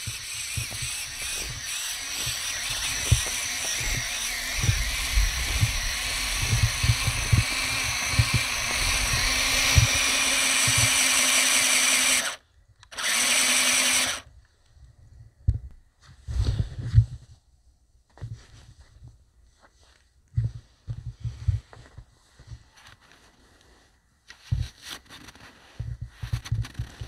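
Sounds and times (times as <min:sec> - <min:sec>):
toy truck motor whining: 0:00.0 - 0:14.3
low thumps: 0:02.6 - 0:11.2.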